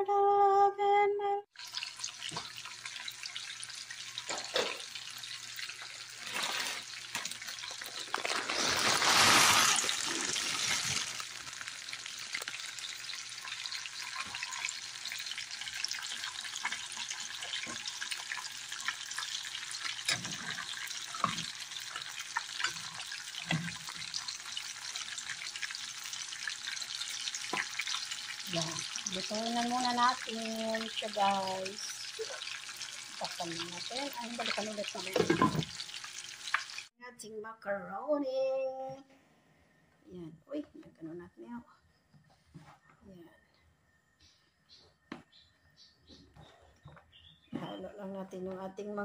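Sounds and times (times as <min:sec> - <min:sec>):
pot of water boiling: 0:01.6 - 0:36.9.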